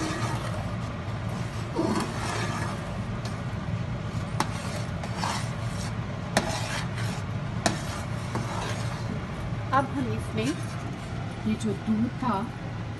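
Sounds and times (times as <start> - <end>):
metal spoon scraping a pan: 0.0 - 3.1, 4.1 - 9.2, 10.0 - 10.9
steady low hum: 0.0 - 12.9.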